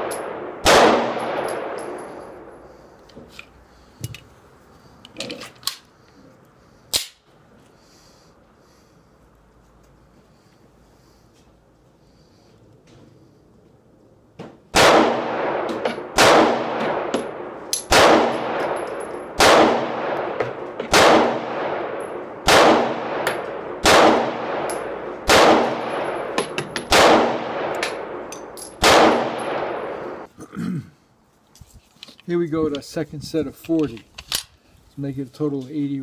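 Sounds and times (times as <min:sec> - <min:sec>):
pistol shots ringing: 0:00.0 - 0:02.4, 0:14.7 - 0:30.3.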